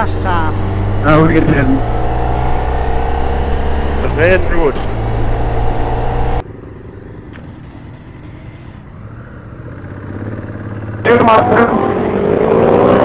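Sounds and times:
motorcycle engine running: 0.0 - 6.8
dull motorcycle engine rumble: 0.0 - 11.9.

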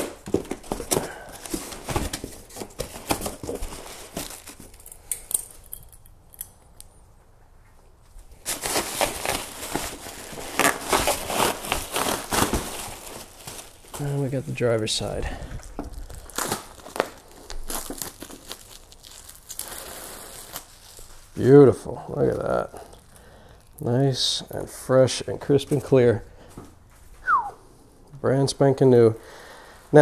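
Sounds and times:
plastic wrapping crinkling: 0.0 - 6.4, 8.2 - 24.6.

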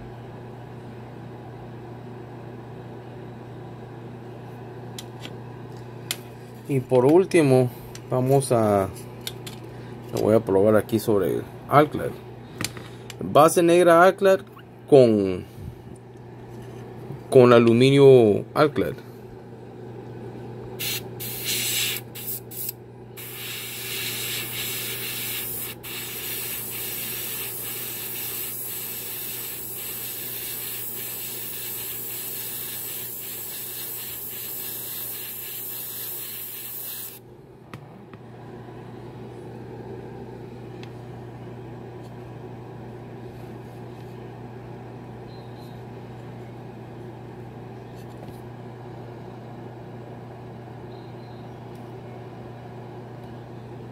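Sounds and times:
airbrush spraying paint: 20.8 - 37.2.

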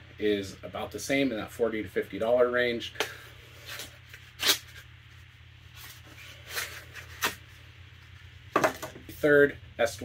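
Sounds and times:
axe and sheath knocks and rustles: 8.5 - 9.1.

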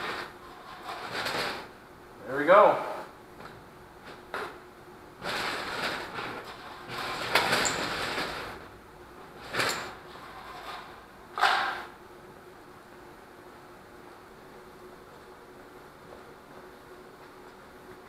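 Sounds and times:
wire sliding and rubbing: 0.0 - 1.8, 5.2 - 8.7, 9.4 - 11.1.

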